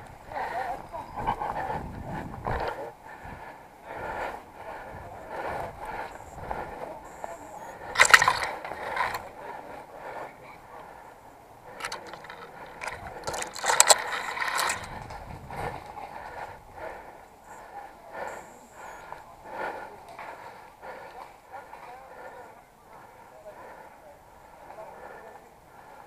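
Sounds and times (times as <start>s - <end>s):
branches rustling and snapping: 11.8s - 15.2s.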